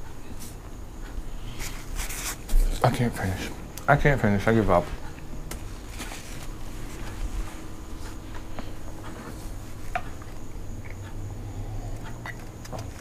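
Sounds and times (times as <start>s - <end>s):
steady low hum: 0.0s - 13.0s
paper napkin rustling: 1.6s - 3.1s, 5.5s - 8.2s
man chewing food: 5.0s - 13.0s.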